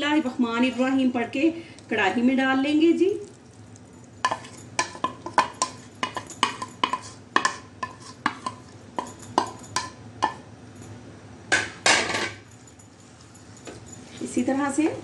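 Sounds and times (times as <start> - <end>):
spatula knocking bowl rim: 4.3 - 10.4.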